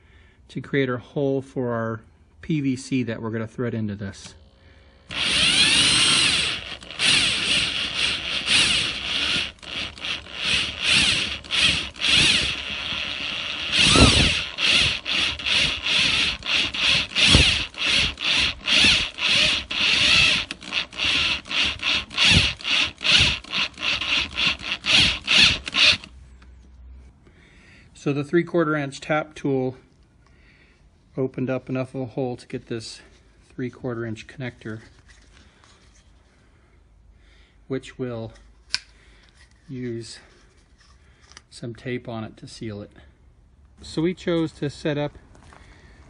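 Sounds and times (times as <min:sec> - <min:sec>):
cordless drill cutting plastic: 0:04.3 - 0:26.1.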